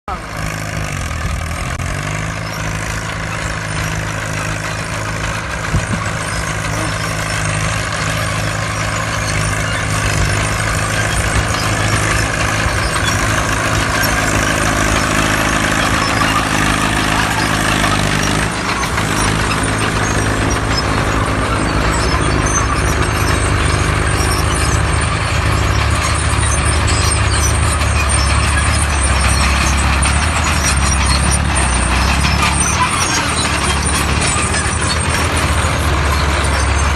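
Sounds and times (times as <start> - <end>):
tractor engines running: 0.0 - 36.9.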